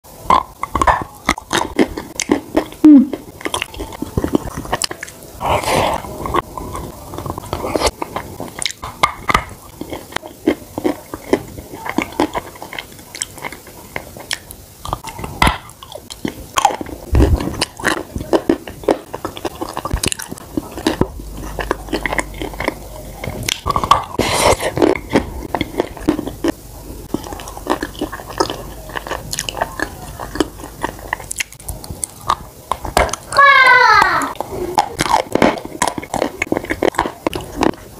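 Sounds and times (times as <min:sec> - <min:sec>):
wet biting and chewing: 0:00.2 - 0:33.4, 0:34.0 - 0:37.9
cookie dragged through spread: 0:05.4 - 0:08.3.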